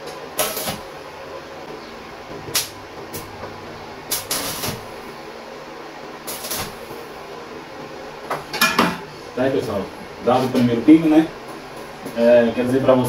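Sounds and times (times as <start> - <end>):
steady hum: 0.0 - 13.0
arc welder hissing: 0.4 - 5.4, 6.2 - 8.3.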